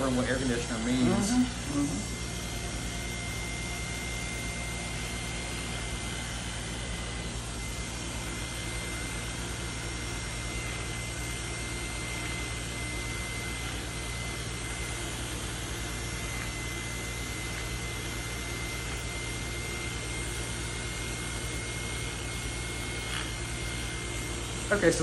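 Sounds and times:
small electric motor running: 0.0 - 25.0.

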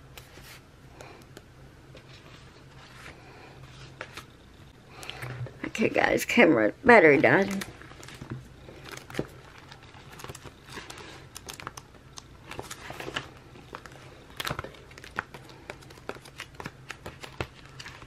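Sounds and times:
paper and plastic crinkling: 7.2 - 18.0.

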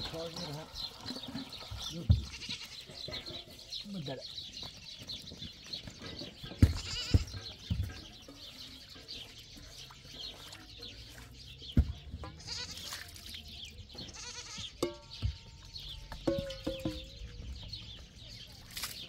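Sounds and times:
goats bleating: 2.0 - 3.3, 6.6 - 7.6, 12.2 - 13.0, 14.0 - 14.8
metal tray knocks: 16.1 - 17.3.

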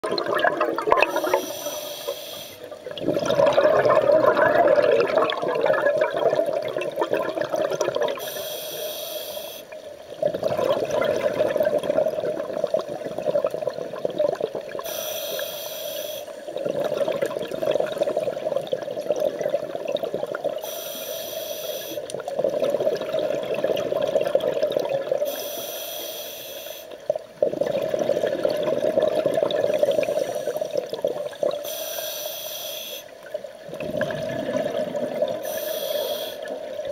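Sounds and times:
bubbling underwater exhalations: 0.0 - 1.5, 2.9 - 8.2, 10.2 - 14.8, 16.5 - 20.6, 22.2 - 25.2, 27.4 - 31.6, 33.6 - 35.6
hissing regulator inhalations: 1.1 - 2.7, 8.2 - 9.8, 14.8 - 16.5, 20.6 - 22.1, 25.3 - 27.0, 29.8 - 30.8, 31.6 - 33.1, 35.4 - 36.6.

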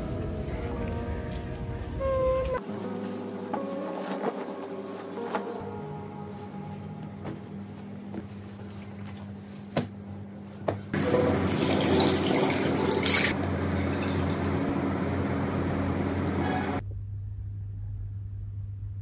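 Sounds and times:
water running into sink: 11.0 - 13.4.

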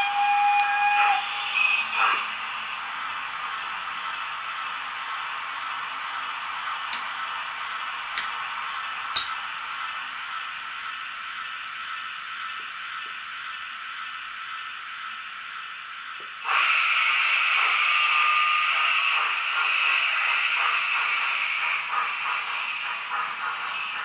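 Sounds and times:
steam hiss: 0.0 - 8.6, 16.4 - 24.0
sharp clicks: 9.2 - 9.4.

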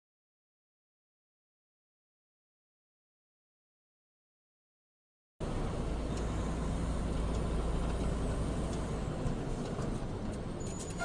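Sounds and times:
road noise: 5.4 - 11.0
truck diesel engine rumble: 5.4 - 11.0.

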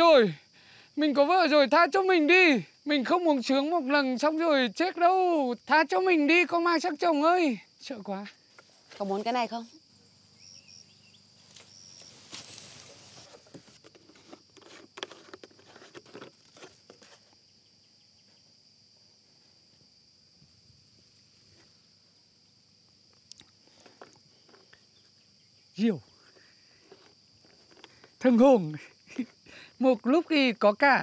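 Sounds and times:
high insect drone: 0.0 - 31.0
plastic jug handling: 11.5 - 17.3.

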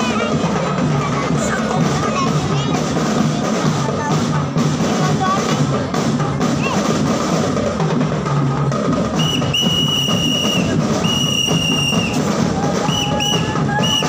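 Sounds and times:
marching band drumming: 0.0 - 14.0
whistle blasts: 9.2 - 14.0.

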